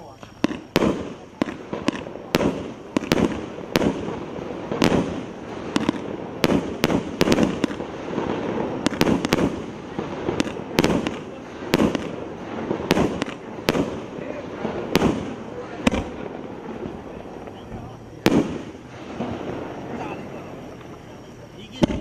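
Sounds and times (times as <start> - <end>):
fireworks crackle: 0.0 - 22.0
fireworks sharp bangs: 0.0 - 22.0.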